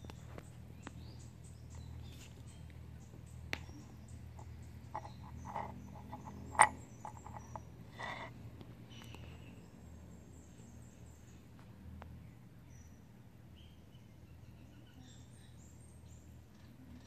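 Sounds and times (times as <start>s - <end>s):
steady low hum: 0.0s - 17.0s
metal medal clicking on wood: 4.4s - 8.3s.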